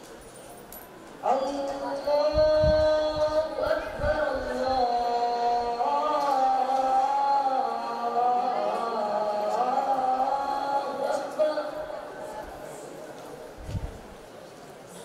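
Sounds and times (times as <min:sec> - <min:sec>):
boy chanting call to prayer: 0:01.2 - 0:13.0.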